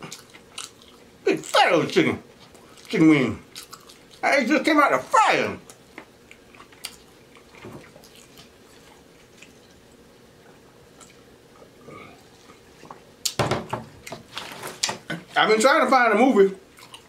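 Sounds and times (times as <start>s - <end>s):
soft chewing: 0.0s - 1.2s, 2.2s - 4.2s, 5.6s - 13.4s, 16.6s - 17.0s.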